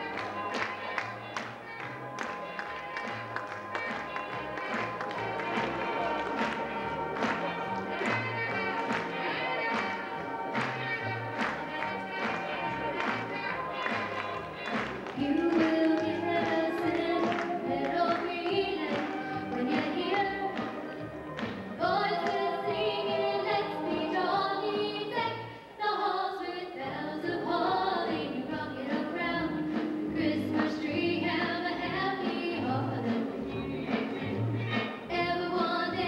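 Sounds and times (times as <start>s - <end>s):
instrumental backing with beat: 0.0s - 22.5s, 28.8s - 36.0s
woman singing into microphone: 15.2s - 21.1s, 21.8s - 33.2s, 35.1s - 36.0s.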